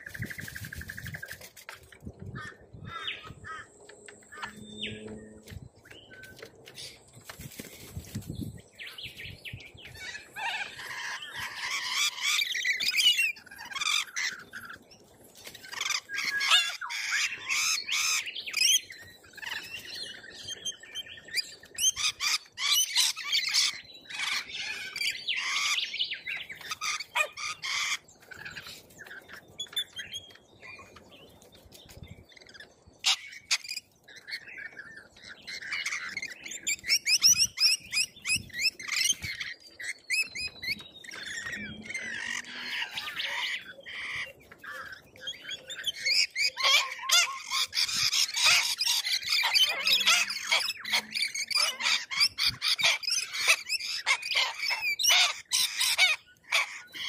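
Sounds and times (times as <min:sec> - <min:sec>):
wing flapping: 0:00.0 - 0:02.1, 0:06.2 - 0:08.4
parrots chattering and squawking: 0:09.9 - 0:14.8, 0:15.5 - 0:19.8, 0:21.3 - 0:25.9, 0:26.5 - 0:30.0, 0:32.4 - 0:57.0.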